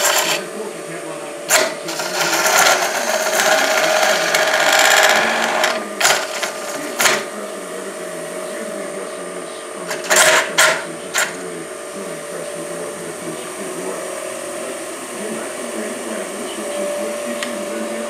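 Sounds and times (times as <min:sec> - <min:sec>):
turning tool scraping wood: 0:00.0 - 0:00.5, 0:01.5 - 0:07.2
wood lathe motor whine: 0:00.0 - 0:18.0.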